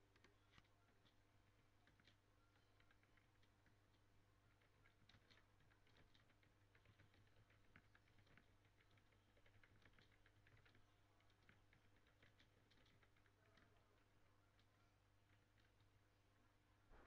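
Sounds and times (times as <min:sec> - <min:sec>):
computer keyboard typing: 0:00.0 - 0:16.1
faint low hum: 0:00.0 - 0:17.0.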